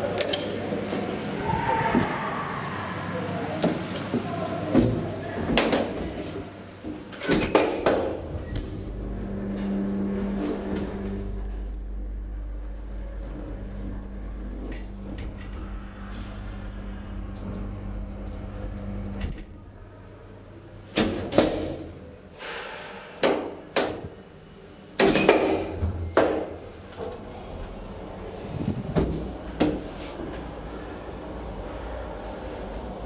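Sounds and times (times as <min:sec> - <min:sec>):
elevator drive humming: 0:00.0 - 0:22.8, 0:23.5 - 0:33.0
elevator doors clattering: 0:03.2 - 0:20.1.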